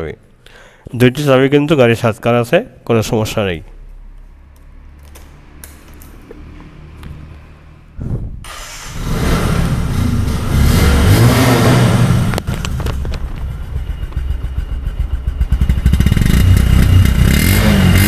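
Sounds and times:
electric starter cranking: 8.5s - 9.6s
motorcycle engine revving: 8.5s - 18.0s.

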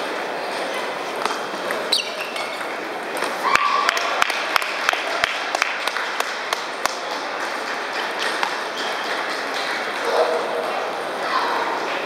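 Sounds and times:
hum of busy hall: 0.0s - 12.0s
ping-pong ball hits and bounces: 7.5s - 10.7s.

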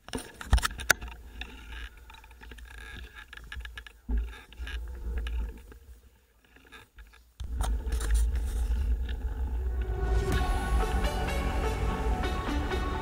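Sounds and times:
bike clicks and rattles: 0.0s - 9.4s.

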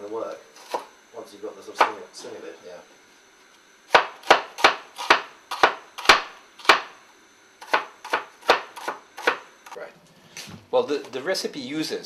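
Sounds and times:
knife chopping on wooden board: 0.6s - 0.9s, 1.8s - 2.0s, 3.9s - 7.0s, 7.6s - 9.5s.

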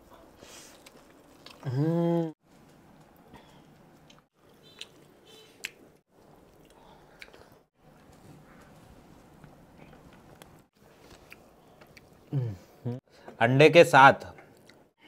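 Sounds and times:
chewing and biting: 0.6s - 1.7s
man humming with full mouth: 1.6s - 2.3s.

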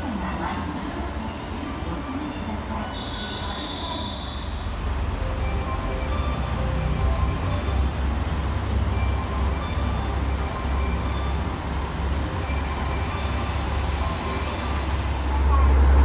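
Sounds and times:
train engine and wheel rumble: 0.0s - 16.0s
high squeal: 9.1s - 15.8s.

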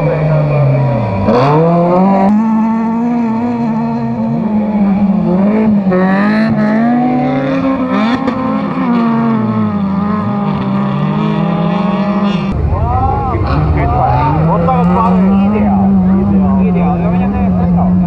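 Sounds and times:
race car engines revving: 0.0s - 18.0s
car passing close: 5.1s - 18.0s.

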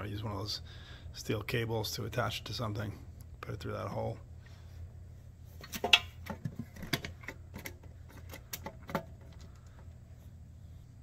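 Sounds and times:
metal box turned and set down: 5.6s - 9.5s.

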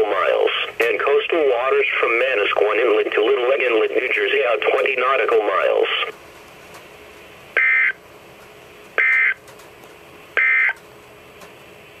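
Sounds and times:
warbling data tone bursts: 7.6s - 8.0s, 9.0s - 9.4s, 10.4s - 10.8s.

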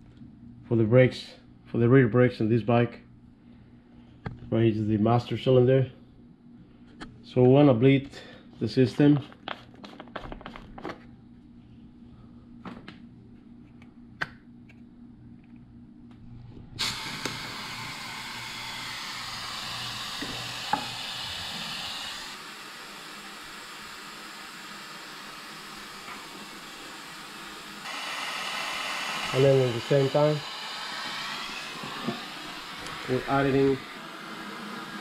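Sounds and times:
vacuum brake bleeder hissing: 16.8s - 35.0s.

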